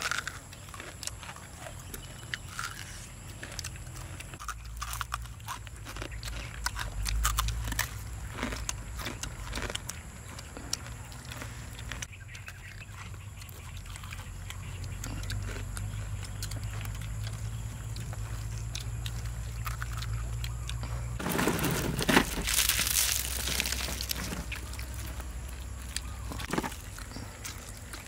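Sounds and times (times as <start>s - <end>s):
eating clicks: 0.0s - 21.2s
fried chicken wings crunching: 0.0s - 28.0s.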